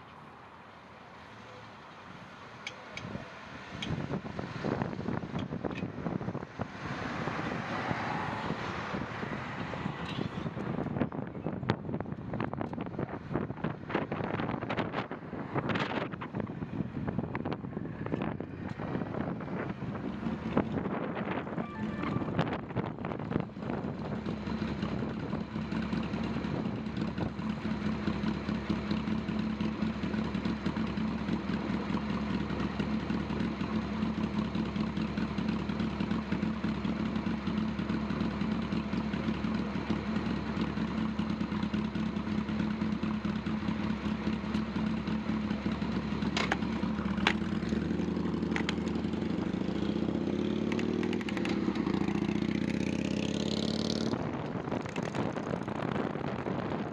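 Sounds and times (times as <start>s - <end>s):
road and wind noise: 0.0s - 56.9s.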